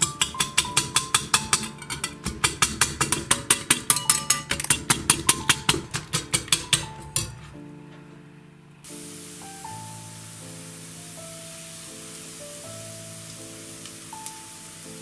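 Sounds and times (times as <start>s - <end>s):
whisk clinking against glass bowl: 0.0s - 7.3s
background music: 0.0s - 15.0s.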